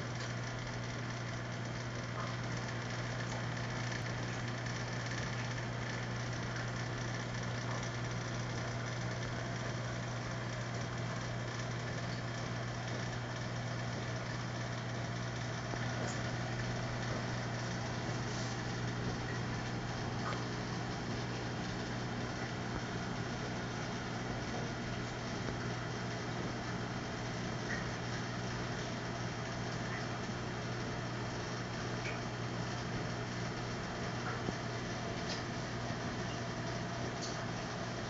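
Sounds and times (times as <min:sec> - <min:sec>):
aquarium pump humming: 0:00.0 - 0:38.0.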